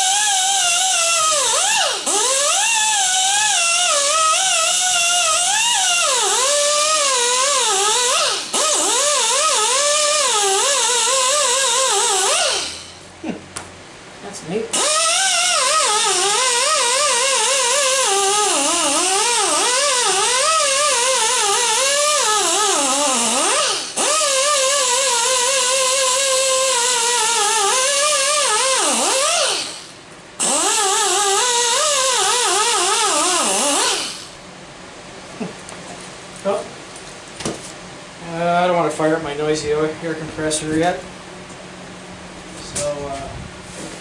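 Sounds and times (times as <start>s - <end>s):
air die grinder whining on metal: 0.0s - 13.0s, 14.8s - 34.4s.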